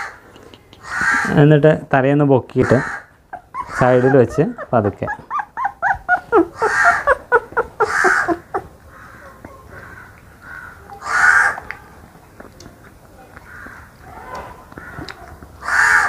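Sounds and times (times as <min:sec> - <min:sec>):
harsh cawing calls: 0:00.8 - 0:01.5, 0:02.6 - 0:04.6, 0:06.6 - 0:11.7, 0:13.4 - 0:14.0, 0:14.8 - 0:16.0
puppy squeaking and whimpering: 0:02.7 - 0:08.7.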